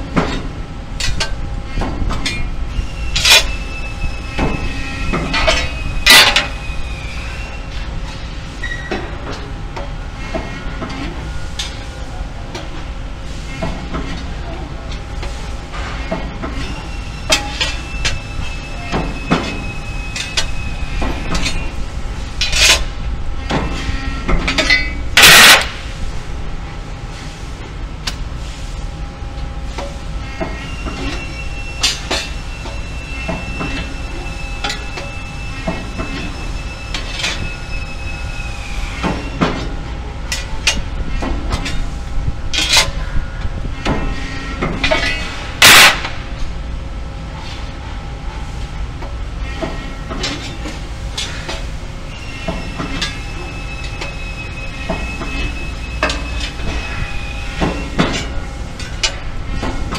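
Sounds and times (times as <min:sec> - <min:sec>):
loud noise bursts: 0:25.2 - 0:25.9, 0:45.6 - 0:46.3.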